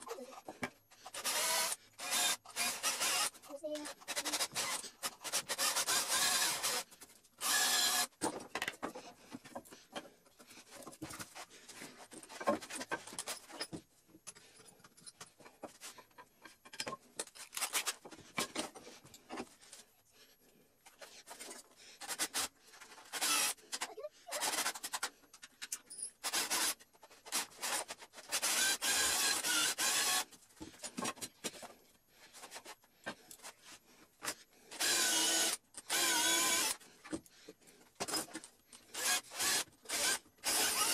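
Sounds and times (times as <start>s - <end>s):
cutting tool rasping wood: 0.4s - 8.1s.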